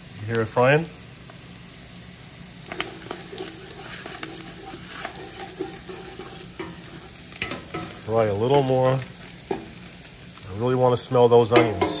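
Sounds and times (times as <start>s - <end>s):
meat sizzling in a pot: 0.0s - 12.0s
spoon stirring and scraping: 2.7s - 8.8s.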